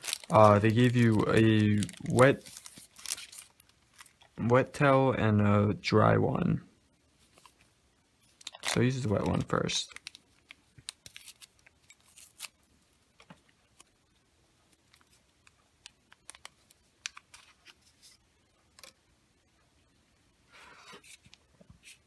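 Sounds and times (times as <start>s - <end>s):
foil sachet crinkling: 0.0s - 4.3s, 8.4s - 12.6s.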